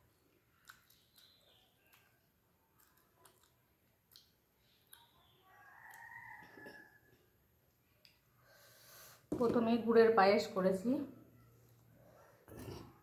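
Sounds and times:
wet mouth clicks and lip smacks: 0:00.5 - 0:05.2.

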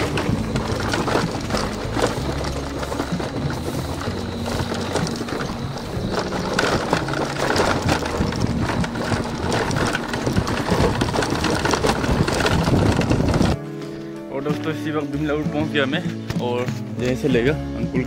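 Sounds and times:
bike rattling over stones: 0:00.0 - 0:13.6
small motorcycle running: 0:00.0 - 0:13.6.

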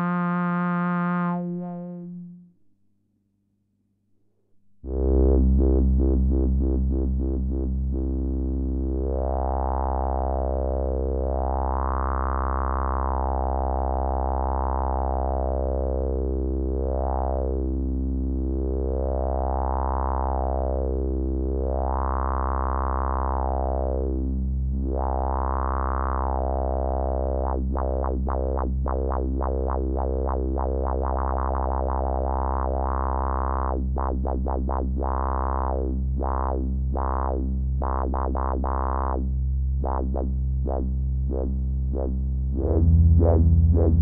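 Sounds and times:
synthesizer drone with filter sweeps: 0:39.8 - 0:44.0.

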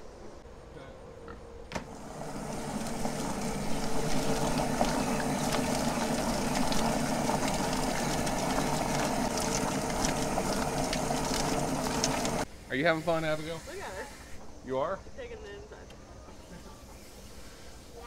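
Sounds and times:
poultry plucker motor hum: 0:01.8 - 0:12.5
water hissing from hose nozzle: 0:02.2 - 0:12.5.

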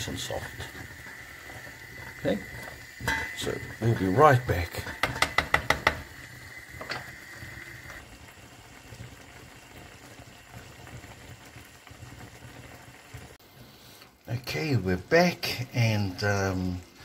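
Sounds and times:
sauce bubbling in a pan: 0:00.0 - 0:17.0
wooden spoon tapping a pan: 0:01.9 - 0:03.4, 0:04.8 - 0:06.2.

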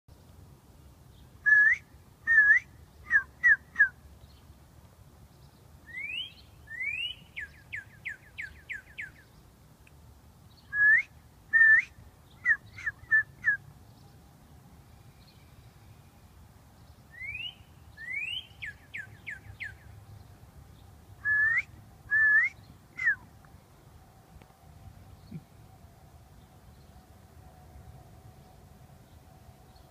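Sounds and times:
songbird singing: 0:00.1 - 0:29.9
person whistling: 0:21.3 - 0:23.2.

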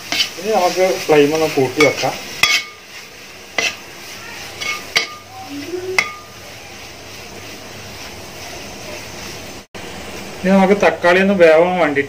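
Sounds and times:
onion and tomato sizzling in a pan: 0:00.0 - 0:12.0
metal spoon clinking against pan: 0:01.8 - 0:02.8, 0:04.6 - 0:05.3, 0:06.0 - 0:06.4.

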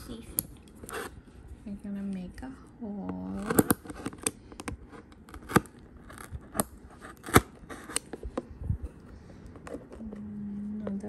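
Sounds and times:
scissors cutting cardboard: 0:03.3 - 0:08.2.

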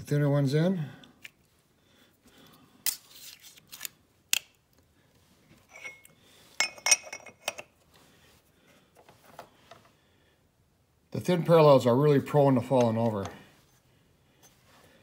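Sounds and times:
metal clinking on steel vise: 0:05.7 - 0:07.7.

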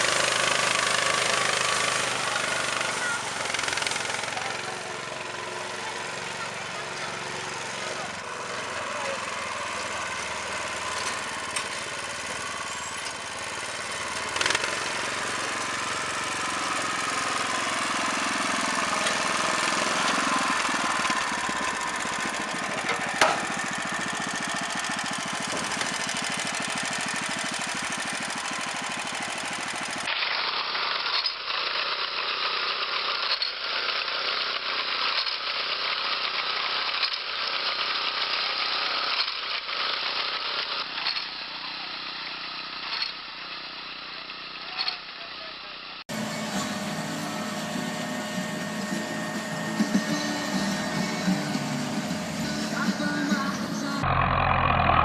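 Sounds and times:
small petrol engine clattering: 0:00.0 - 0:55.0
reaper engine ticking rattle: 0:00.1 - 0:05.4, 0:06.1 - 0:45.2
sharp engine knocks: 0:21.3 - 0:23.6, 0:25.4 - 0:26.2.

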